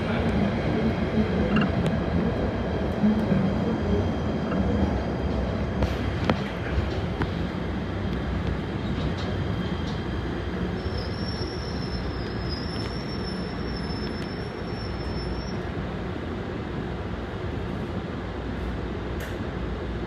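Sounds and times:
subway car rumbling on rails: 0.0s - 20.0s
high steady squeal: 10.7s - 15.7s.

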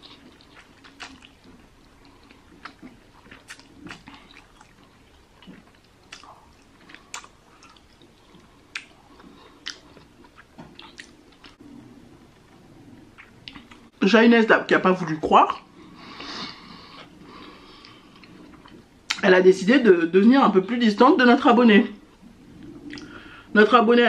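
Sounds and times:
person chewing noodles: 0.0s - 13.9s, 15.7s - 18.9s, 22.2s - 23.3s
wet mouth smacks: 22.9s - 23.1s.

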